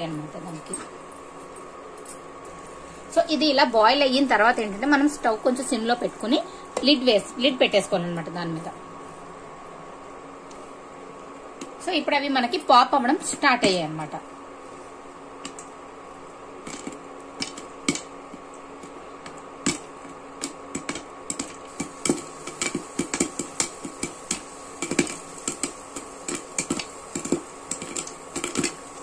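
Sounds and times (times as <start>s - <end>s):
steady hum: 0.0s - 29.0s
popcorn popping in a pan: 11.4s - 14.2s, 15.1s - 29.0s.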